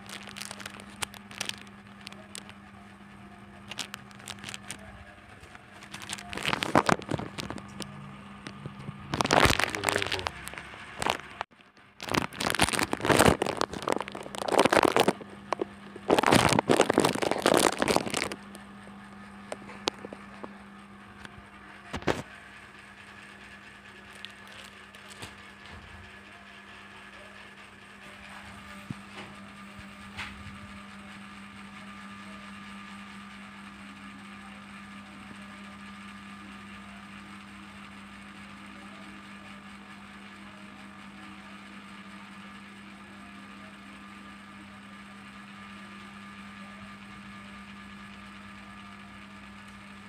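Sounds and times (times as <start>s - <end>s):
plastic packaging crinkling: 0.0s - 2.6s, 3.6s - 18.6s, 19.4s - 20.5s, 21.9s - 22.3s, 24.0s - 25.6s
steady low hum: 0.0s - 44.9s.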